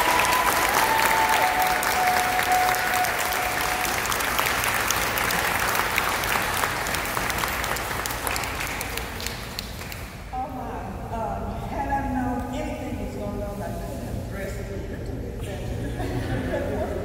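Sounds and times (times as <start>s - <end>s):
crowd applauding: 0.0s - 10.2s.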